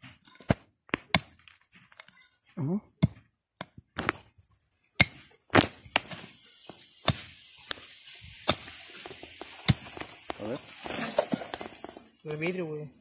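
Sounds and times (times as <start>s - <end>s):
metal blade chopping into dry soil: 0.0s - 2.1s, 5.0s - 11.8s
high-pitched insect buzz: 1.5s - 3.0s, 4.0s - 13.0s.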